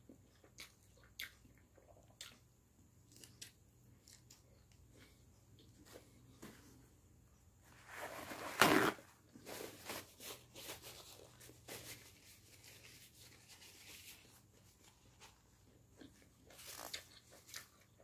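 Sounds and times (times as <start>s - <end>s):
paper towel ripping: 7.8s - 14.2s
paper crinkling and rubbing: 7.8s - 15.7s.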